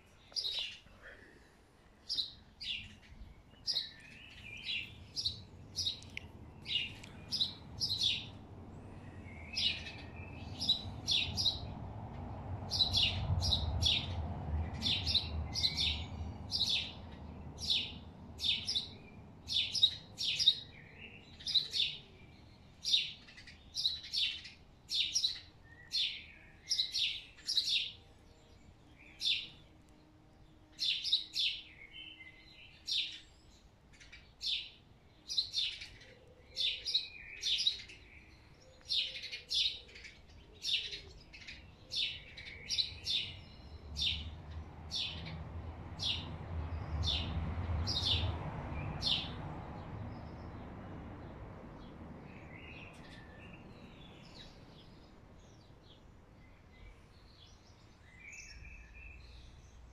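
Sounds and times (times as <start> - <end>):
small bird chirping: 0.0 - 0.9, 2.1 - 8.4.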